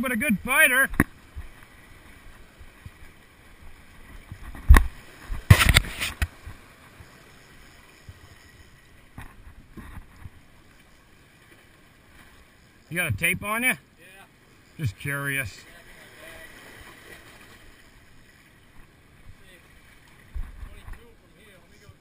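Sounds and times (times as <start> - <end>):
sharp thump: 4.6 - 6.3.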